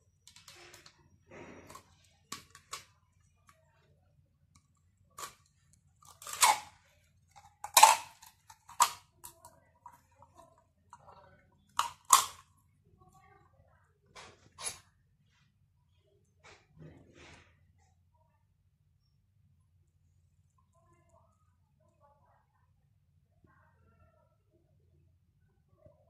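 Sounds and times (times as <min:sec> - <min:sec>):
plastic parts clicking on table: 0:04.6 - 0:06.7, 0:07.3 - 0:09.5, 0:11.7 - 0:12.4.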